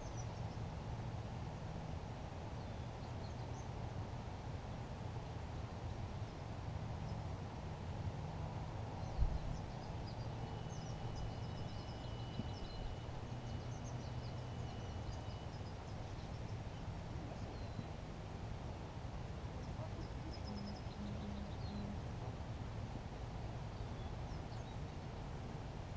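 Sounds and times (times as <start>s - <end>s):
small birds chirping: 0.0s - 0.6s, 9.0s - 18.1s, 19.6s - 22.0s
low steady hum: 0.0s - 25.9s.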